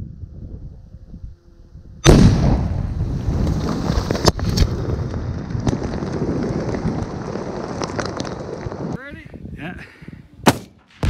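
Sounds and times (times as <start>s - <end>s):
heavy explosion rumble: 2.0s - 9.0s
sharp cracks and thuds: 2.0s - 9.0s, 10.4s - 11.0s
debris raining down: 3.0s - 9.0s.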